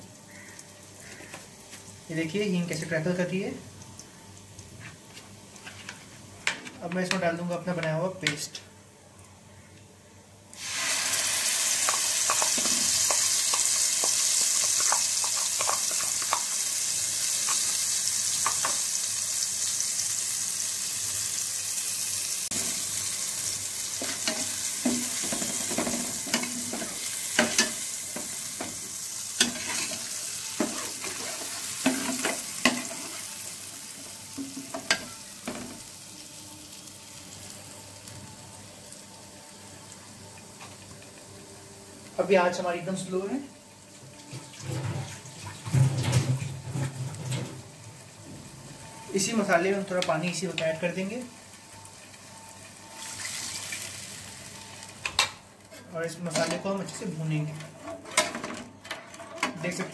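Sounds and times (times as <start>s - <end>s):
spice paste sizzling in hot oil: 10.5s - 41.0s, 48.8s - 55.0s.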